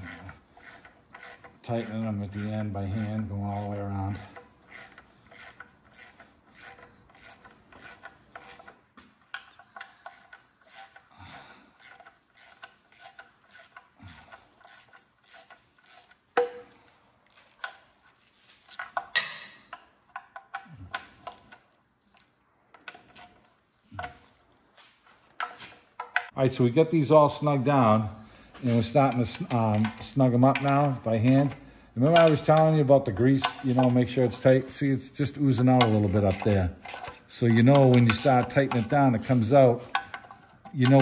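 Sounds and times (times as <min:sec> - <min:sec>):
socket ratchet clicking: 0:00.0 - 0:11.1, 0:11.8 - 0:17.9, 0:33.4 - 0:34.0, 0:35.6 - 0:39.0.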